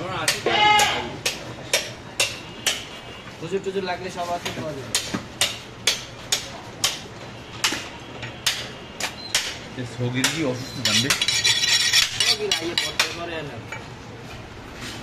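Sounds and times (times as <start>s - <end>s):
knife chopping on wooden block: 4.9s - 7.0s.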